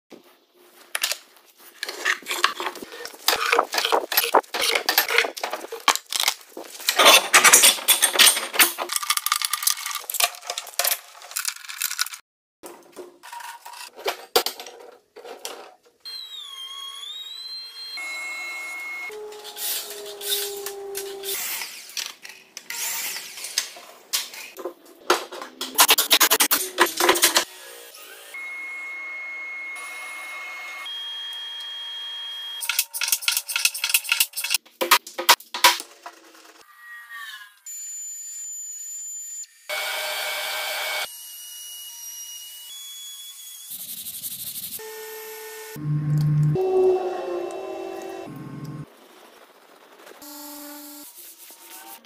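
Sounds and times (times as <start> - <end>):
short wavering squeal: 16.1 - 21.4, 36.6 - 37.9
steady humming tones: 45.8 - 48.8.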